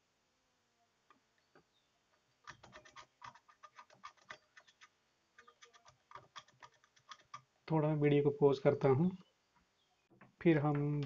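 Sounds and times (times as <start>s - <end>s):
screwdriver scratching circuit board: 2.5s - 7.4s.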